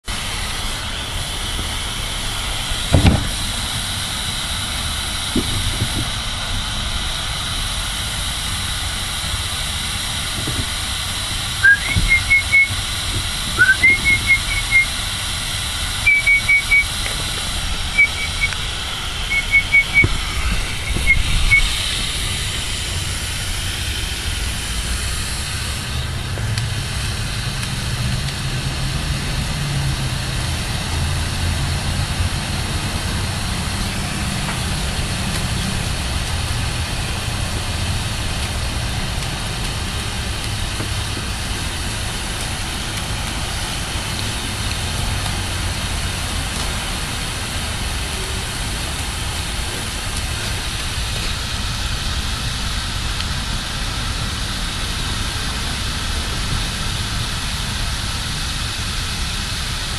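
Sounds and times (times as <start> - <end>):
hose spraying water: 0.0 - 59.9
thump: 2.9 - 3.5
short high chirps: 11.6 - 15.0, 16.0 - 17.0, 17.8 - 21.8.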